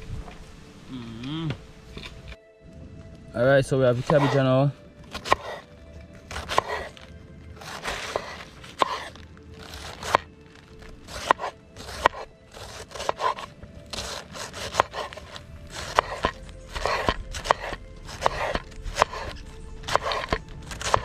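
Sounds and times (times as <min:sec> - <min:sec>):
knife crunching through cabbage: 0:04.0 - 0:04.4, 0:05.0 - 0:21.0.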